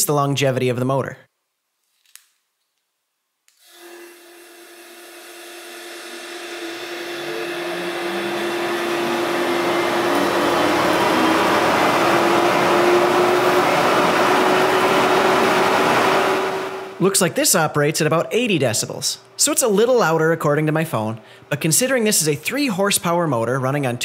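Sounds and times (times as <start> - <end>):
dust collector motor hum: 3.8 - 17.0.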